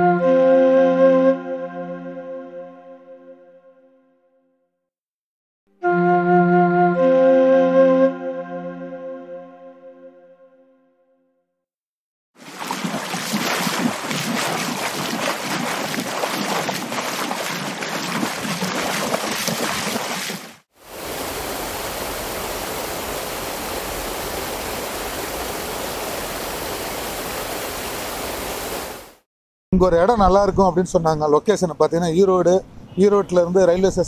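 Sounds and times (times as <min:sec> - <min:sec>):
rushing water: 0:12.4 - 0:29.2.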